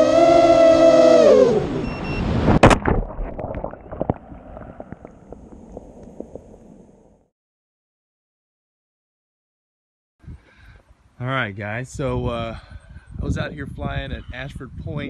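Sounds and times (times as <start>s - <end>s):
splash into water: 2.4s - 6.5s.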